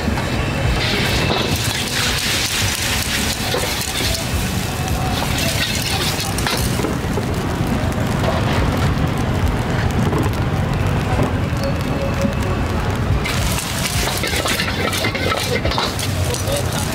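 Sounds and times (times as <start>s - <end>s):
food sizzling: 0.6s - 16.9s
people talking: 3.4s - 6.7s, 14.2s - 16.9s.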